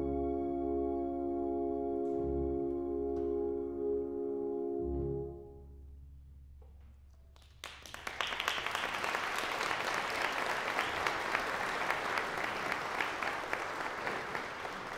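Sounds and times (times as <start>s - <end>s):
audience applauding: 7.3s - 14.9s.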